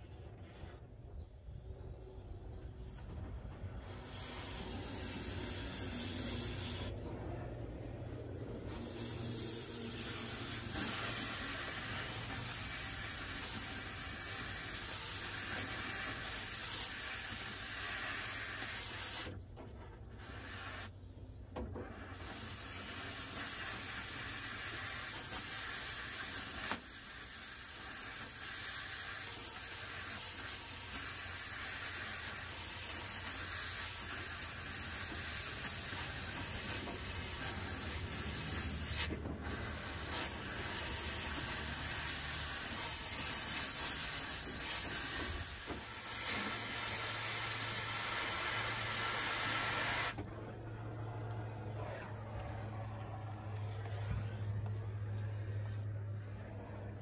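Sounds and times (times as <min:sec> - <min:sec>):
cutting torch hissing: 0:03.7 - 0:07.0, 0:08.6 - 0:19.4, 0:20.2 - 0:20.9, 0:22.1 - 0:50.2.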